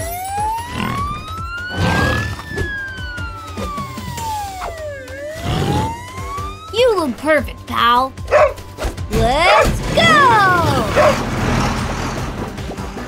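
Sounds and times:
cartoon ambulance siren wailing: 0.0s - 8.5s, 9.4s - 11.1s
background music: 0.0s - 13.0s.

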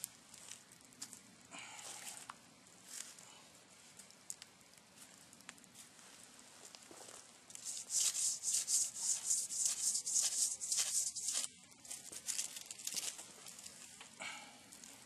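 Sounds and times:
close rustling and rubbing: 7.6s - 13.0s.

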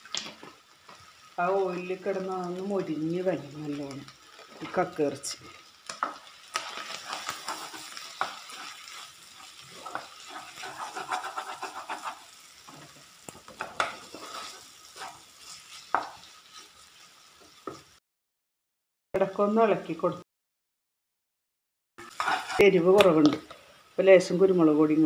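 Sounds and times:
meat frying in oil: 0.0s - 18.0s, 22.0s - 25.0s
spatula scraping and knocking pan: 5.9s - 16.8s, 22.0s - 22.7s.

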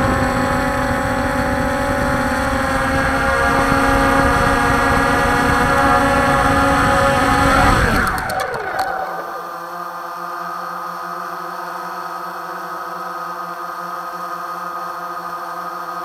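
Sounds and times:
drone motors whining: 1.9s - 9.8s.

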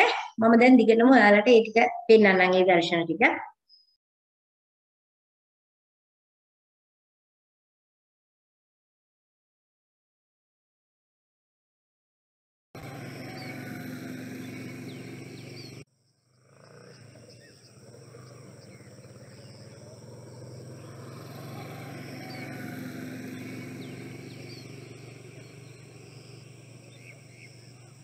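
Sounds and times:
small birds chirping: 2.2s - 4.0s, 12.8s - 28.0s
steady low hum: 16.5s - 28.0s.

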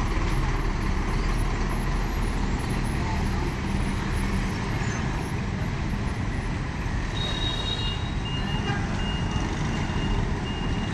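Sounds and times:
bus engine rumble: 0.0s - 10.9s
street traffic: 0.0s - 10.9s.

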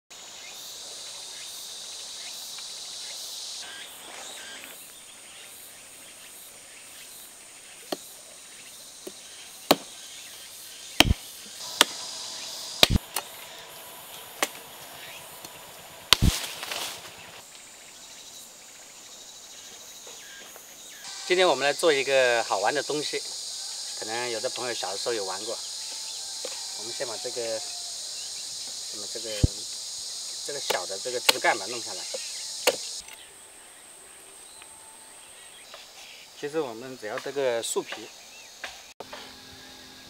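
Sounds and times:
insects buzzing: 0.1s - 40.0s
leaves rustling: 0.2s - 38.6s
blade chopping a branch: 9.0s - 9.9s, 11.0s - 12.1s, 12.8s - 13.3s, 14.4s - 14.6s, 15.4s - 17.2s, 30.6s - 33.2s.

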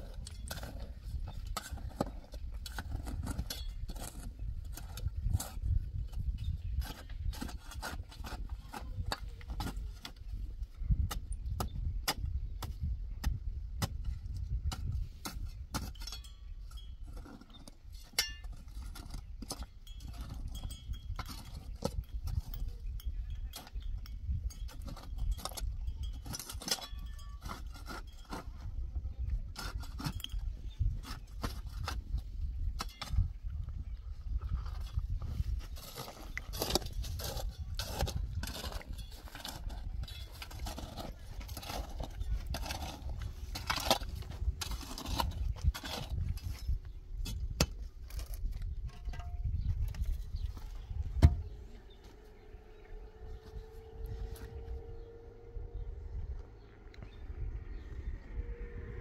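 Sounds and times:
metal tool chipping stones: 0.0s - 10.3s, 10.9s - 32.0s, 32.6s - 33.6s, 34.7s - 50.1s.

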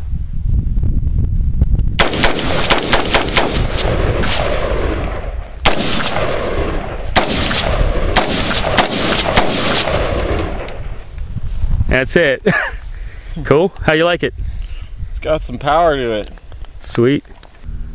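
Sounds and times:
rifle gunshots with echo: 2.0s - 11.0s.

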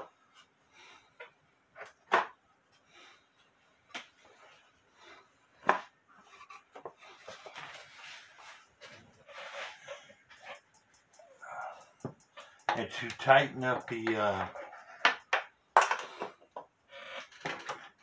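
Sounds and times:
rubbing and rustling of clock case: 3.3s - 11.2s.

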